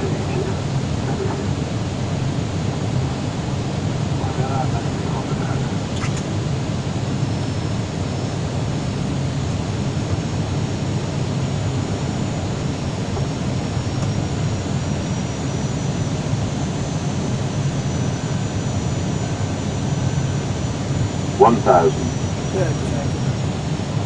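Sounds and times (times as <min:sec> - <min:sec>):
jet engines rumbling in cabin: 0:00.0 - 0:24.0
faint high whine: 0:16.8 - 0:23.7.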